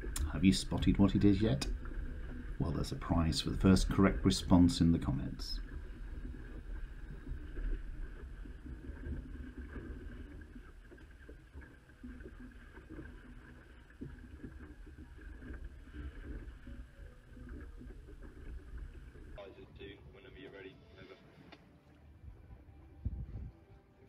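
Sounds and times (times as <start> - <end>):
water splashing along hull: 0.0 - 20.3
wind rumble on microphone: 22.2 - 23.7.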